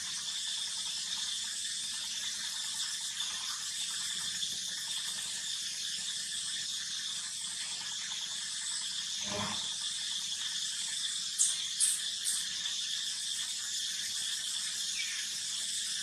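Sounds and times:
high-pitched insect chorus: 11.3s - 12.5s, 14.5s - 15.8s.

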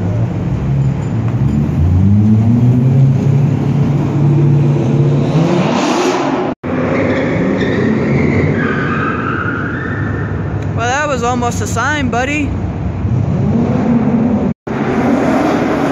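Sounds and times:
car engine revving: 1.6s - 8.0s, 13.0s - 15.9s.

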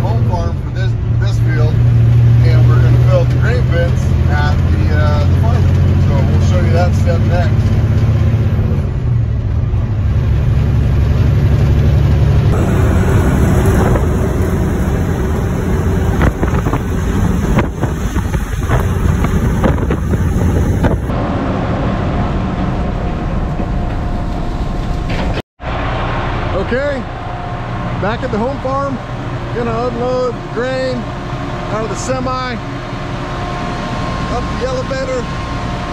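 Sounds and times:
road rumble: 0.0s - 35.9s
truck engine rumble: 0.0s - 35.9s
wind noise: 12.4s - 25.4s.

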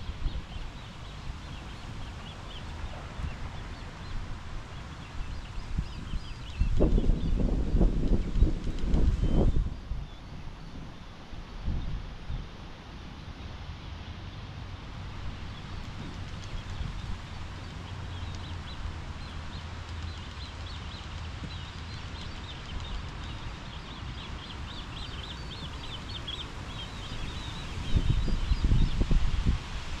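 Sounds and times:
wind buffeting microphone: 0.0s - 12.8s, 14.8s - 30.0s
low outdoor rumble: 0.0s - 30.0s
songbird chirping: 15.3s - 29.2s.

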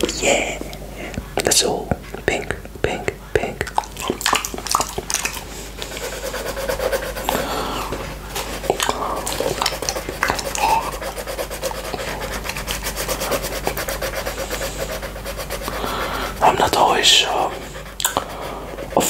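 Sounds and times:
tongue licking wet mouth sounds: 3.4s - 6.0s, 8.6s - 11.1s, 18.0s - 18.3s
pencil scratching on paper: 5.4s - 19.0s.

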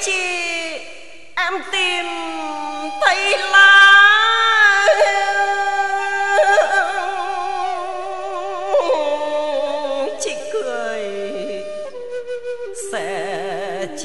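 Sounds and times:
woman chanting poetry: 0.0s - 12.0s, 12.7s - 14.0s
traditional instrumental accompaniment: 2.7s - 13.8s.

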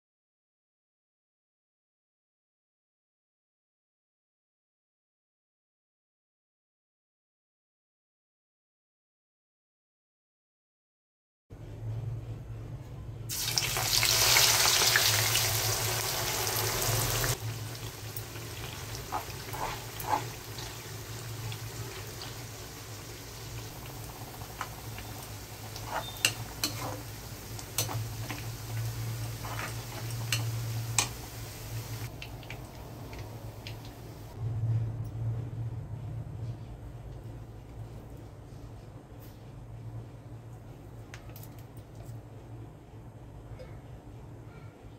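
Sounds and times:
onions sizzling in hot oil: 13.3s - 32.6s
low steady hum: 15.4s - 44.9s
metal spoon scraping pan: 18.7s - 20.9s, 25.6s - 31.2s.

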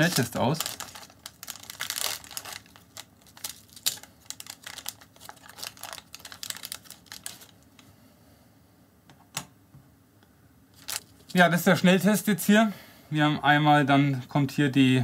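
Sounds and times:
foil pouch crinkling: 0.0s - 7.8s, 10.8s - 11.4s.

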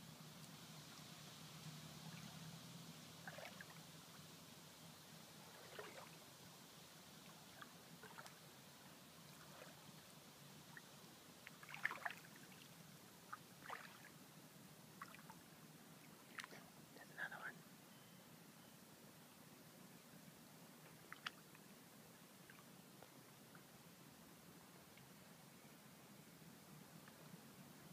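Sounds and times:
small water splashes: 3.2s - 3.8s, 5.4s - 6.2s, 7.2s - 8.4s, 9.3s - 9.8s, 10.7s - 14.2s, 15.0s - 15.4s, 21.0s - 21.6s
water lapping: 3.2s - 3.8s, 5.4s - 6.2s, 7.2s - 8.4s, 9.3s - 9.8s, 11.4s - 14.2s.

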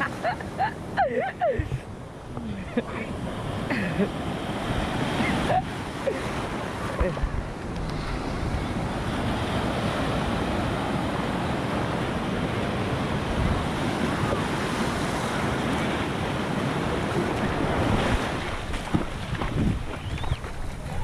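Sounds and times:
surf breaking and washing: 0.0s - 21.0s
wind buffeting microphone: 7.0s - 21.0s.

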